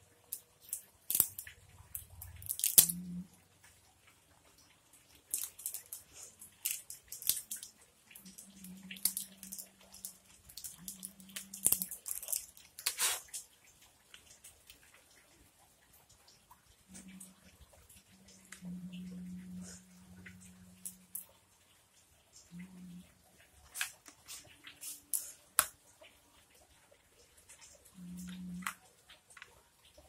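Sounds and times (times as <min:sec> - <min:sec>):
plastic toys clicking and tapping: 0:00.2 - 0:03.2, 0:05.1 - 0:13.5.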